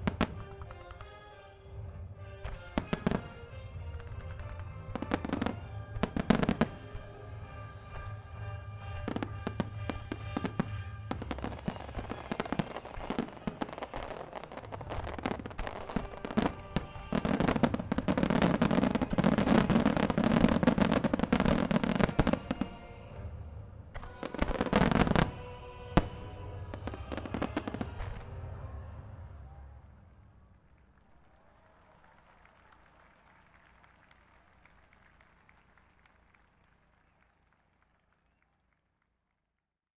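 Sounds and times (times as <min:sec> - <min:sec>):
music playing: 0:00.0 - 0:30.1
fireworks bursting: 0:00.0 - 0:30.8.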